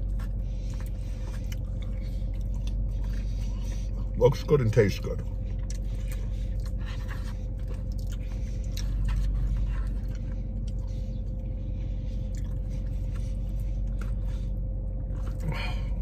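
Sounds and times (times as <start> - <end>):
low hum in car: 0.0 - 16.0
man chewing food: 0.0 - 16.0.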